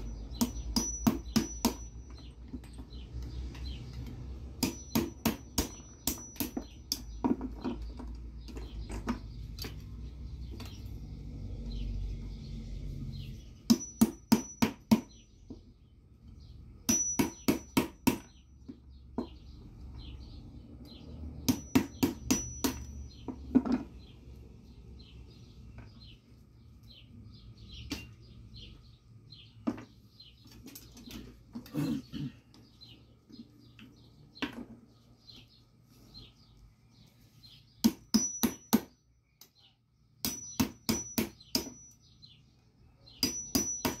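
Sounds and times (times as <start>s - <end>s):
sharp metallic taps: 0.0s - 9.8s, 13.7s - 15.7s, 16.9s - 19.5s, 21.4s - 24.0s, 37.8s - 39.6s, 40.2s - 42.1s, 43.2s - 44.0s
birds chirping: 0.0s - 44.0s.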